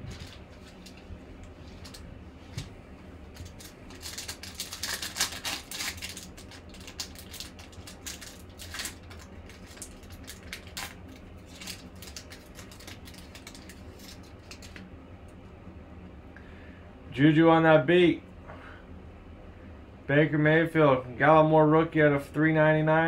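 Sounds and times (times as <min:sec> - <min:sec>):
foil pack crinkling and tearing: 0:00.0 - 0:02.7, 0:03.3 - 0:14.8.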